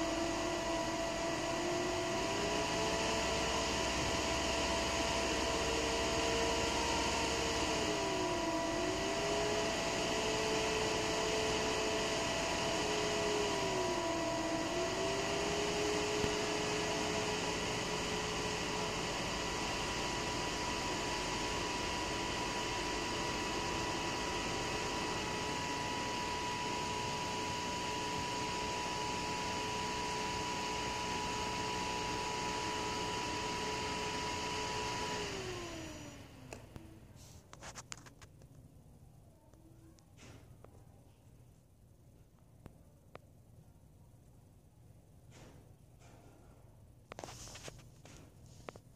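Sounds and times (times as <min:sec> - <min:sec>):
computer fans whirring: 0:00.0 - 0:38.3.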